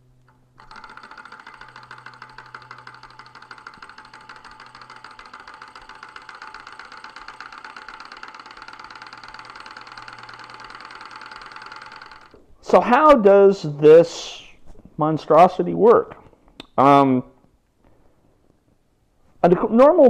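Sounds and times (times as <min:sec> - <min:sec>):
flywheel flicked by hand: 0:00.3 - 0:12.4
model engine mechanical ticking: 0:00.3 - 0:12.4.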